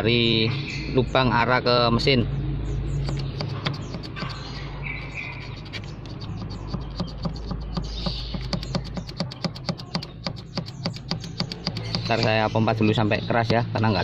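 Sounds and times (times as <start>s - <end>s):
hand pump clicking: 3.1s - 4.5s, 5.2s - 12.5s.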